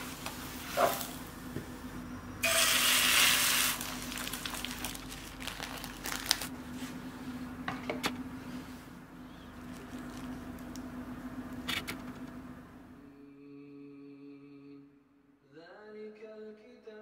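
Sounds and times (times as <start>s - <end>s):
low steady hum: 0.0s - 16.3s
loud sizzling: 2.4s - 5.2s.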